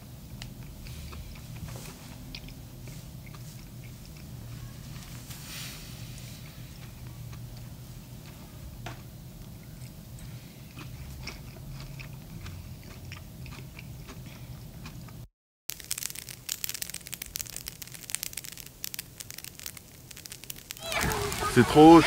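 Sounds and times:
person chewing food: 0.4 - 4.7, 9.5 - 21.7
dense crackling: 15.7 - 22.0.

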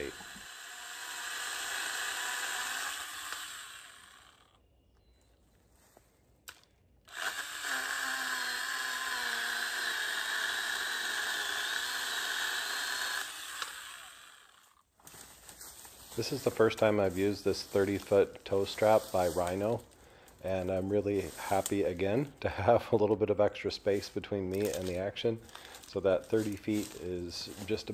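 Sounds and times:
electric pole saw whining: 0.0 - 4.7, 6.5 - 14.9
click: 6.4 - 6.7.

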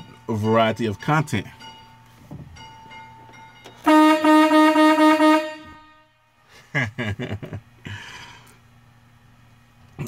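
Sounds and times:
vehicle horn pulsing tone: 3.8 - 6.4
man laughing: 6.5 - 8.3.

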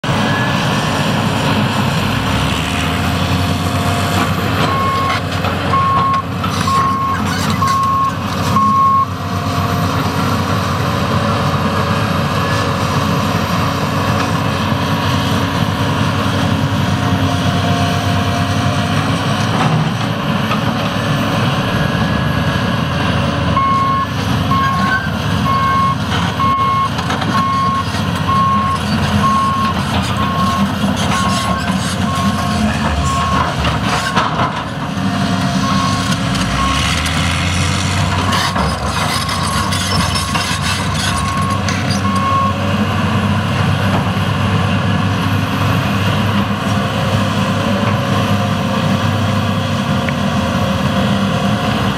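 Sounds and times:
excavator diesel engine running: 0.0 - 51.9.

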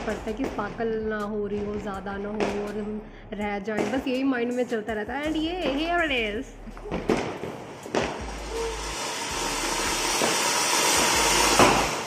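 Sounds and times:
sharp pop: 6.9 - 8.7, 11.0 - 12.0
firework fountain hissing: 7.1 - 12.0.

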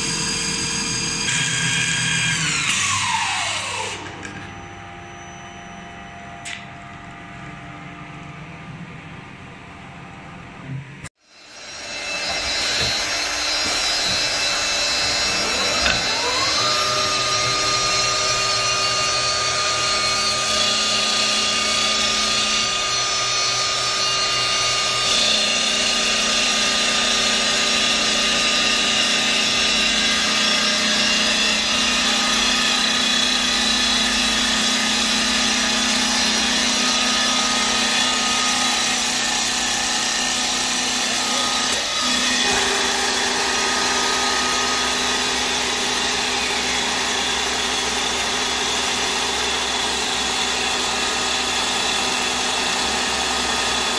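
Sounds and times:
motor whine: 11.0 - 40.0
wood lathe running: 11.2 - 53.9.

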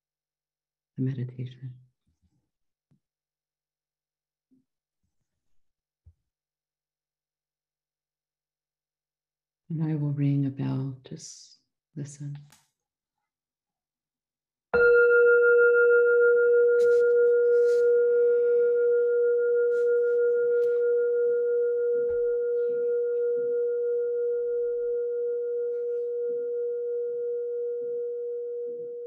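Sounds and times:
meditation bell ringing: 14.8 - 29.0.

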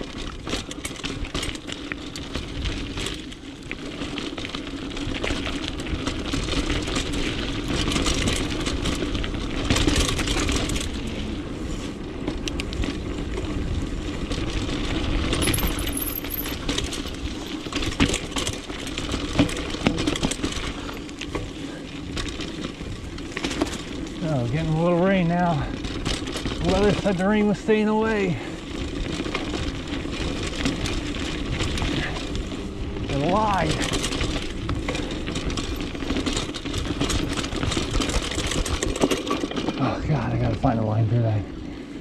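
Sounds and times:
bike chain rattling: 0.0 - 40.8
tyres rolling over dirt: 0.0 - 42.0.

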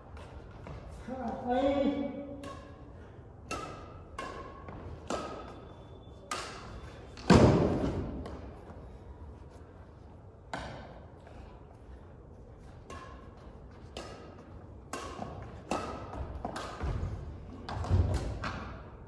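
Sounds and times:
rackets hitting shuttlecock: 0.2 - 8.7, 10.4 - 11.5, 12.7 - 19.0.

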